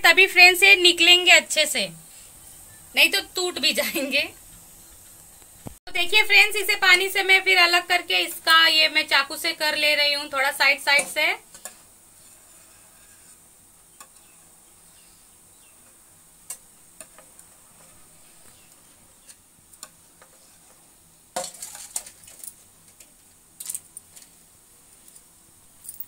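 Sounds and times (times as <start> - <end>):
knife scraping a steel plate: 11.6 - 13.4.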